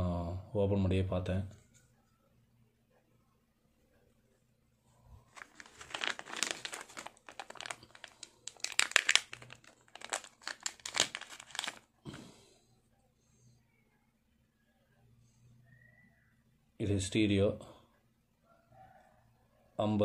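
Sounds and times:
plastic bag crinkling: 5.1s - 12.2s.

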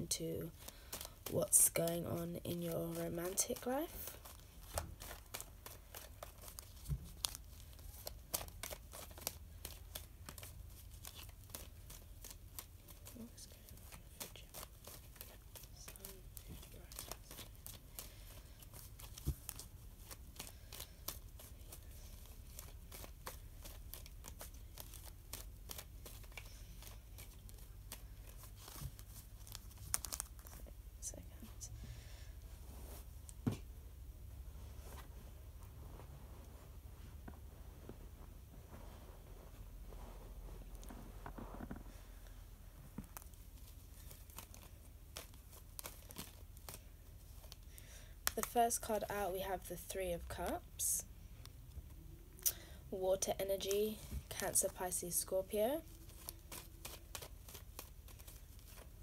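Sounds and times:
cards being shuffled: 0.1s - 31.5s, 40.3s - 50.6s, 53.6s - 59.0s.

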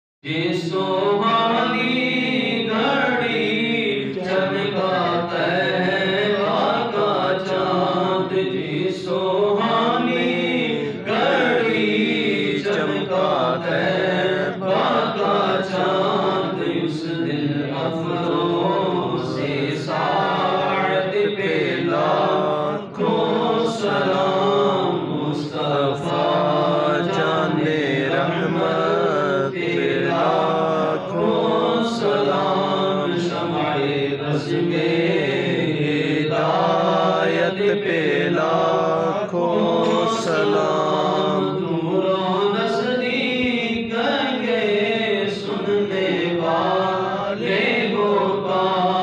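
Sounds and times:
man chanting unaccompanied: 0.2s - 49.0s.

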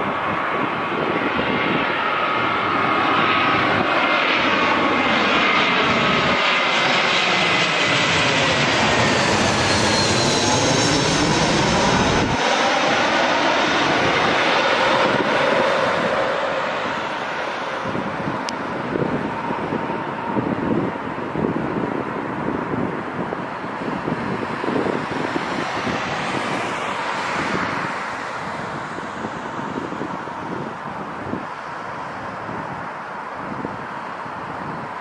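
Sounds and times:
jet airliner passing overhead: 0.0s - 35.0s
whining engine tones: 2.3s - 20.9s.

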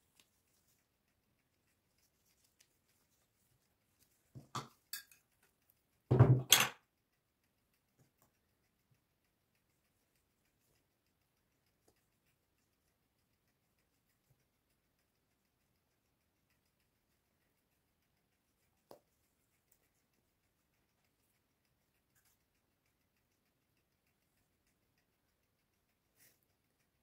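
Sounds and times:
dishes and utensils clattering: 4.6s - 5.2s, 6.1s - 6.8s.

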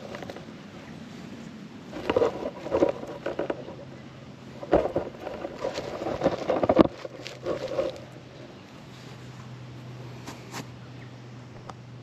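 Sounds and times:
camera handling rustling and knocks: 4.6s - 8.0s.

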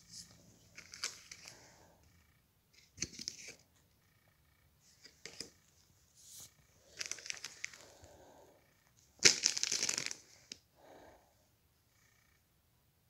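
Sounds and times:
foil wrapper crinkling: 0.8s - 1.5s, 6.9s - 7.9s, 9.2s - 10.2s.

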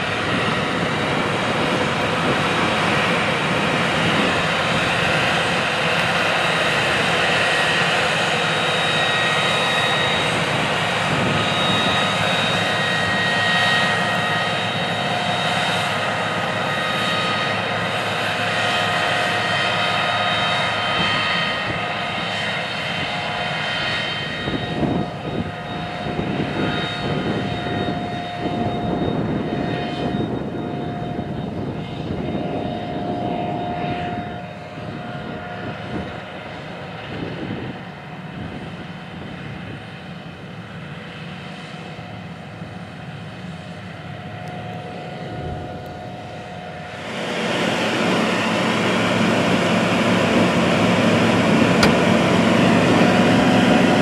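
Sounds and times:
steady high whine: 0.0s - 54.0s
tractor diesel engine under load: 42.2s - 54.0s.

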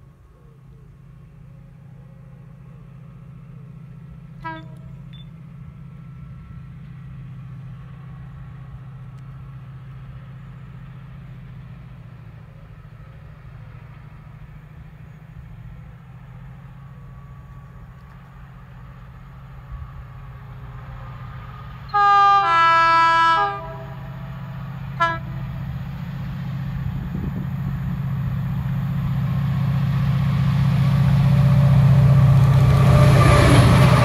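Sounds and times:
diesel locomotive engine drone: 0.0s - 34.0s
locomotive horn toot: 4.4s - 5.2s, 21.9s - 25.6s.

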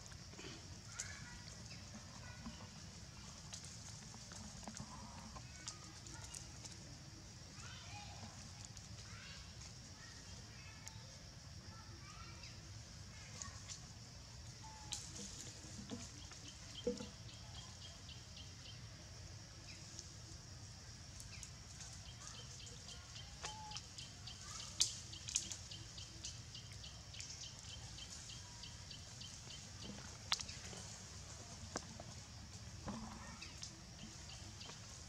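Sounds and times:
monkeys rustling leaves: 24.4s - 25.7s.

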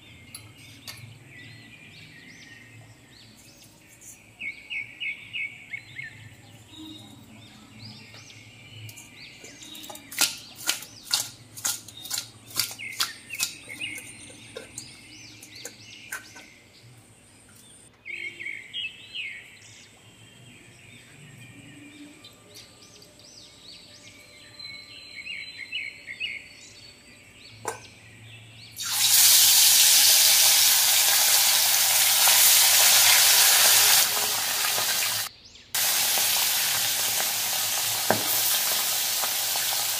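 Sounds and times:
birds chirping: 0.0s - 28.9s
fish sizzling in hot oil: 28.8s - 39.9s.

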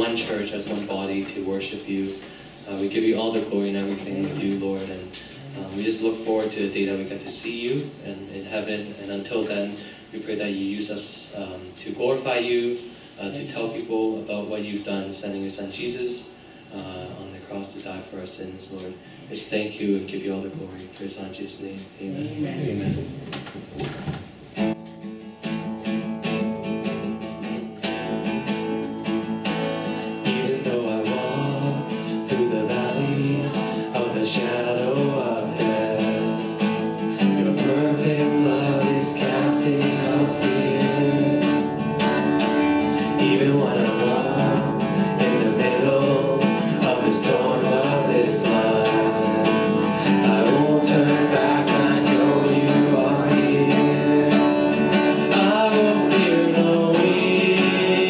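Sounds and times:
strummed acoustic guitar: 0.0s - 10.6s, 24.6s - 58.0s
man singing: 30.0s - 42.1s, 42.8s - 58.0s.

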